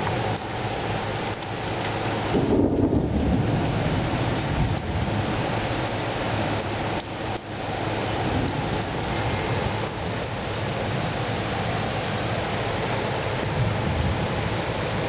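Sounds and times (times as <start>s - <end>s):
steady rain falling: 0.0s - 15.0s
thunder rumbling: 1.3s - 7.0s, 13.4s - 15.0s.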